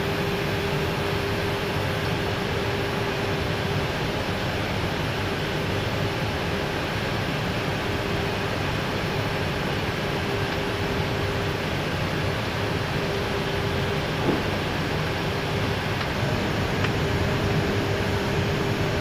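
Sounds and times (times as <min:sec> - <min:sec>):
airflow rushing over cockpit: 0:00.0 - 0:19.0.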